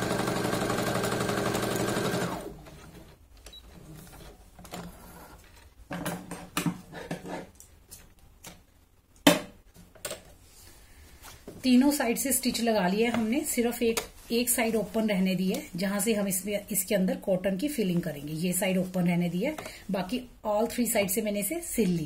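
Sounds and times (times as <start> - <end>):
sewing machine stitching: 0.0 - 3.1
fabric rustling: 10.4 - 15.9.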